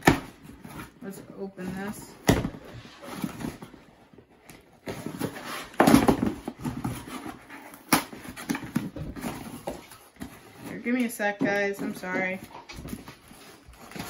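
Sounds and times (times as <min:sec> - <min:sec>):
cardboard flaps scraping: 0:00.0 - 0:11.1.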